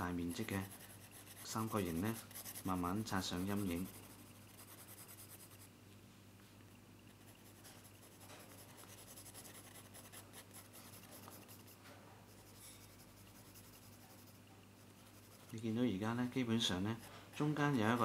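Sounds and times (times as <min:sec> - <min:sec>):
pencil scratching on paper: 0:00.0 - 0:05.7, 0:07.1 - 0:15.6
low steady hum: 0:00.0 - 0:18.0.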